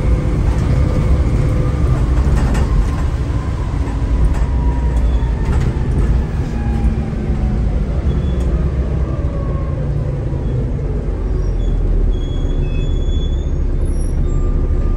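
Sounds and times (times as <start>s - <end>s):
bus engine rumble: 0.0s - 14.9s
faint high squeals: 11.3s - 14.9s.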